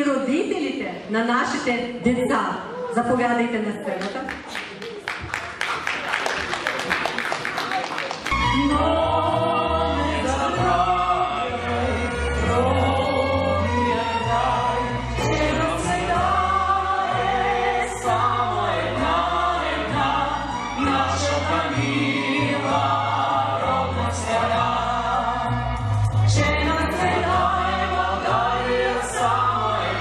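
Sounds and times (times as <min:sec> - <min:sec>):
instrumental accompaniment with bass: 0:08.3 - 0:30.0.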